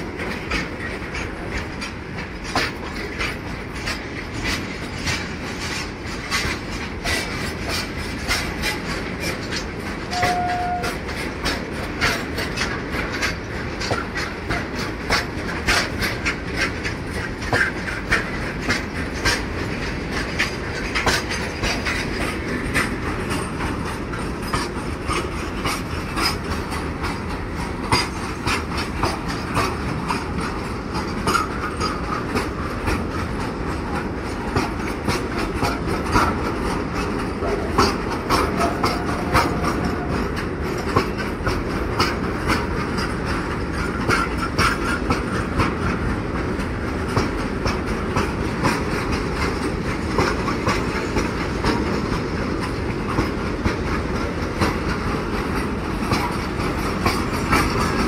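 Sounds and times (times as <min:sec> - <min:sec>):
freight train rumbling past: 0:00.0 - 0:58.0
wheels clacking over rail joints: 0:00.0 - 0:58.0
brief high tone: 0:10.1 - 0:10.9.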